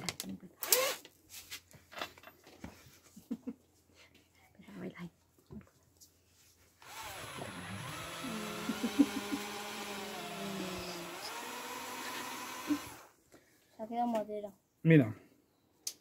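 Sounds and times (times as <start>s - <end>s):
cordless drill boring into wood: 0.6s - 1.0s, 6.8s - 13.1s.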